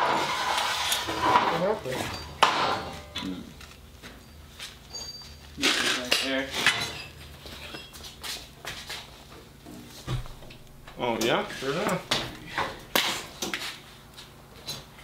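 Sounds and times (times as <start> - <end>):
metal clinks and knocks: 2.0 - 8.2.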